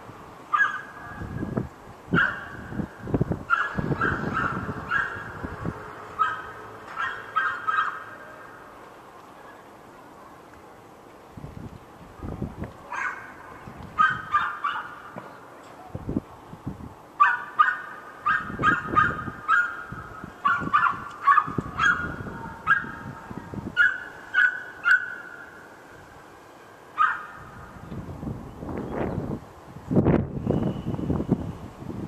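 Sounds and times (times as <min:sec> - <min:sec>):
dog barking in high yaps: 0:00.5 - 0:01.3, 0:02.1 - 0:02.7, 0:03.5 - 0:05.4, 0:06.2 - 0:08.2, 0:12.9 - 0:15.0, 0:17.2 - 0:23.2, 0:23.8 - 0:25.4, 0:27.0 - 0:27.5.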